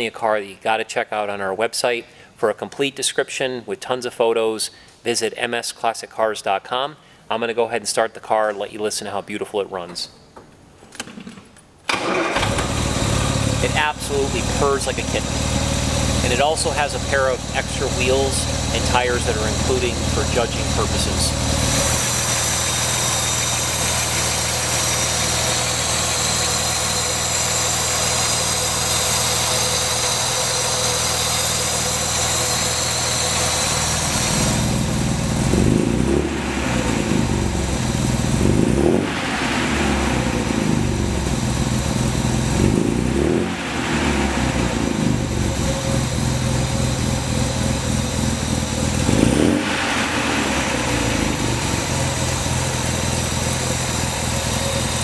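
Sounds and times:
car engine idling and revving: 0:12.3 - 0:55.0.

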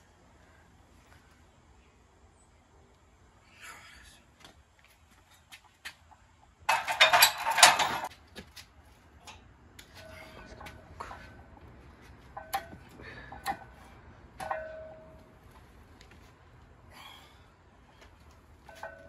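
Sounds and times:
weight plates clinking on bar: 0:06.7 - 0:08.1.

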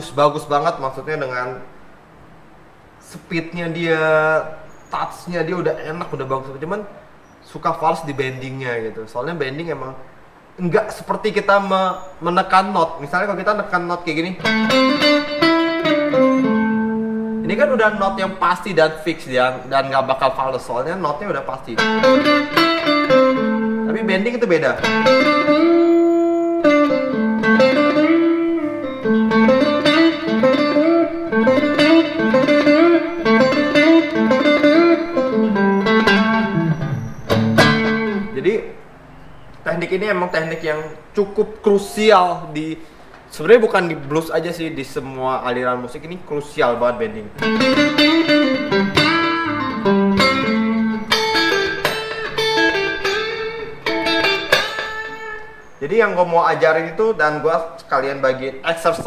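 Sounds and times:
electric guitar blues lick: 0:14.4 - 0:18.4, 0:21.8 - 0:38.4, 0:47.3 - 0:55.7.

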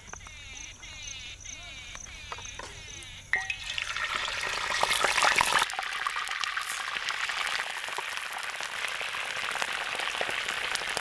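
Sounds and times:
chicken sizzling in hot oil: 0:03.4 - 0:11.0.

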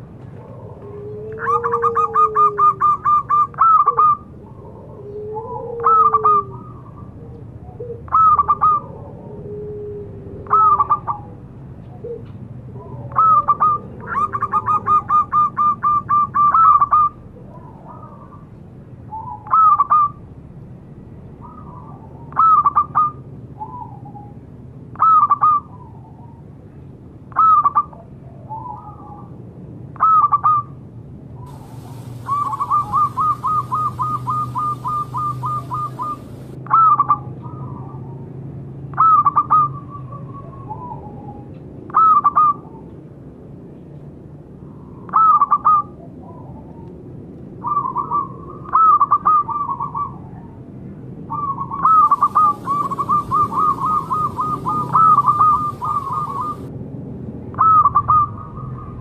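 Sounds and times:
dove cooing: 0:00.0 - 0:18.4, 0:31.5 - 0:38.0, 0:51.3 - 0:56.7.

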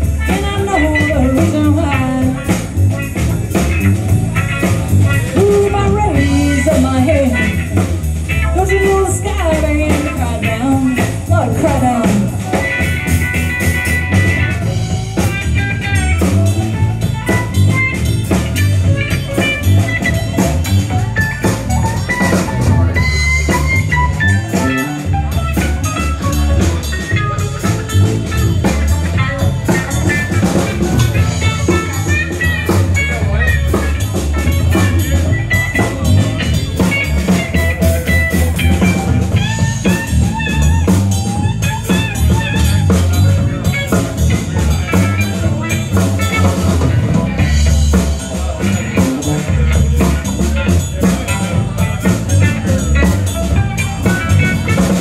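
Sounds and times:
bass guitar: 0:00.0 - 0:55.0
drum kit: 0:00.0 - 0:55.0
electric guitar: 0:00.0 - 0:55.0.

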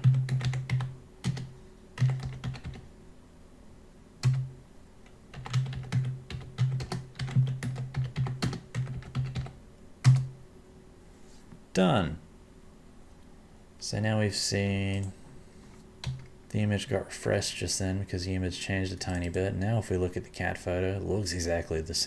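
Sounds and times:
computer keyboard typing: 0:00.0 - 0:02.8, 0:04.2 - 0:04.5, 0:05.3 - 0:10.3.

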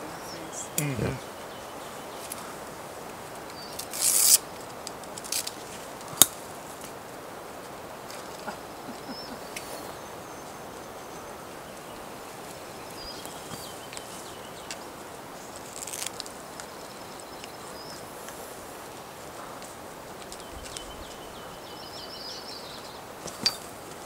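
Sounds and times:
high bird calls: 0:00.0 - 0:02.5, 0:08.3 - 0:14.7
outdoor background noise: 0:00.0 - 0:24.0.

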